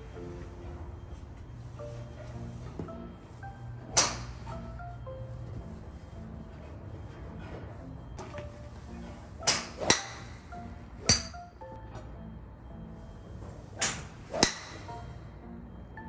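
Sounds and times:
soft background music: 0:00.0 - 0:16.0
golf club striking ball: 0:03.9 - 0:04.4, 0:09.4 - 0:10.4, 0:11.0 - 0:11.4, 0:13.8 - 0:14.9
golf club swing whoosh: 0:09.5 - 0:10.4, 0:13.7 - 0:14.9.

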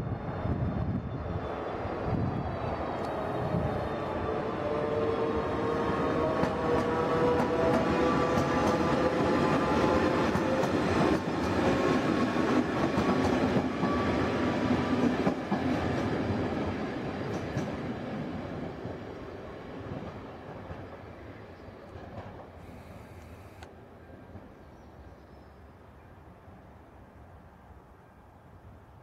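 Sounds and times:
train wheels rumbling on rails: 0:00.0 - 0:23.0.

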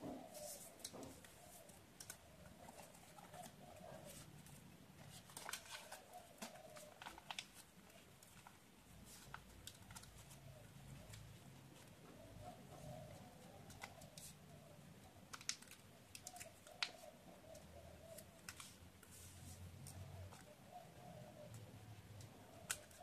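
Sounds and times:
paper rustling and crinkling: 0:00.0 - 0:14.5, 0:22.4 - 0:23.0.

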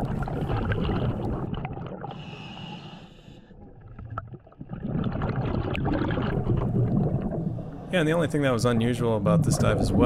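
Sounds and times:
bubbling gurgle of exhaled bubbles: 0:00.0 - 0:10.0
inhaled breath hissing: 0:02.1 - 0:03.6.

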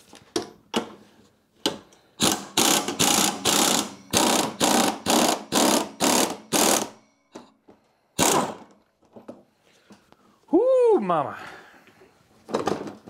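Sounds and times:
pneumatic air ratchet bursts: 0:02.2 - 0:07.0, 0:08.2 - 0:08.6.

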